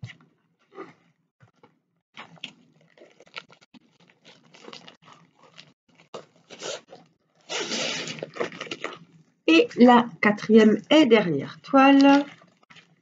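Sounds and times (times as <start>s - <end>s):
wrapping crinkling and rustling: 2.2s - 9.1s.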